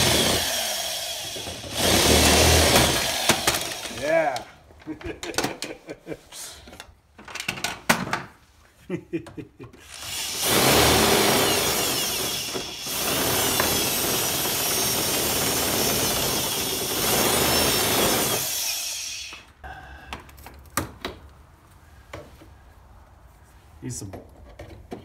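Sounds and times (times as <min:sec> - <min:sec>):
power drill grinding into pegboard: 0:00.0 - 0:04.1, 0:09.8 - 0:19.4.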